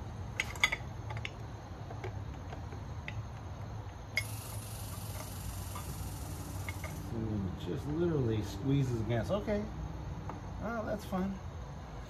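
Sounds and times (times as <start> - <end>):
low steady hum: 0.0 - 12.0
steady high hiss: 3.1 - 9.8.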